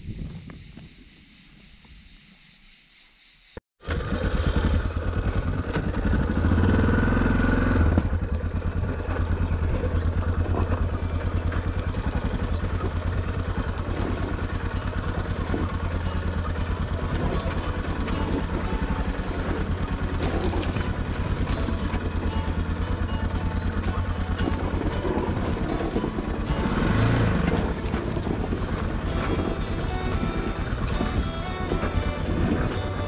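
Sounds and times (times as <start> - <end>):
motorcycle engine revving: 3.8 - 33.0.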